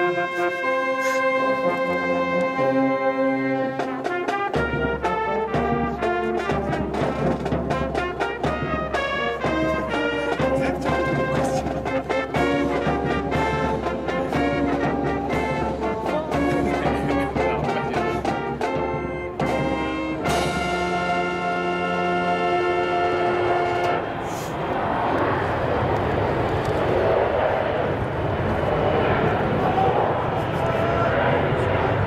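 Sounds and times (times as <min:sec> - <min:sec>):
brass band playing: 0:00.0 - 0:24.4.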